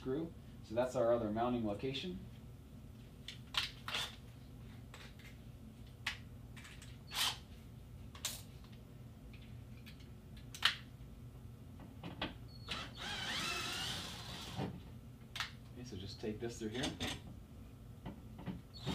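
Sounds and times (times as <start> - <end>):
cordless drill whirring: 12.7 - 14.6
tools clicking and knocking: 16.8 - 17.4.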